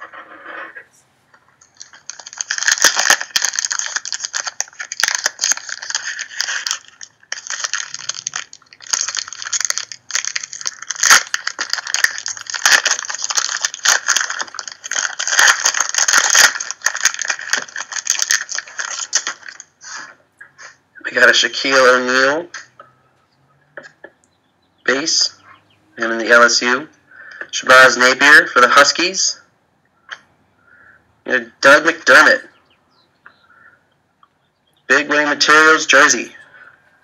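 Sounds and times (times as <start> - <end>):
wrapper crinkling and tearing: 1.6 - 20.1.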